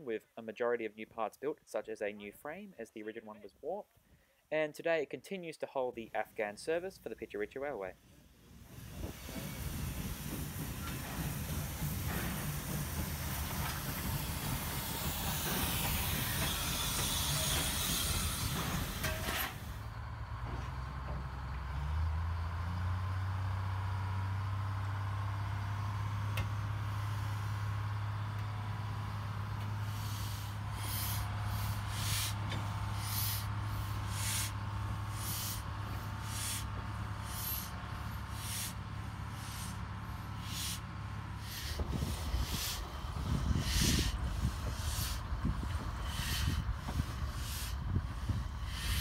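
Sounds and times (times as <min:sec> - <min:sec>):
diesel locomotive engine running: 0:06.7 - 0:49.0
short sharp hisses: 0:29.8 - 0:40.8, 0:41.4 - 0:45.3, 0:45.9 - 0:49.0.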